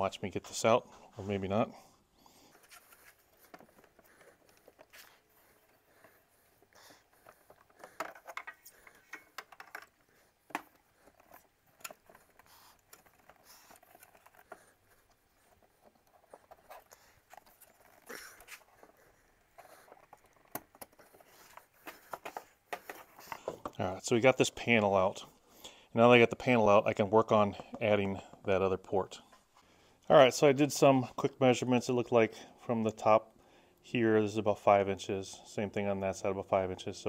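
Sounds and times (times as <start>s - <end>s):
clicks taps and scrapes: 2.4s - 23.8s.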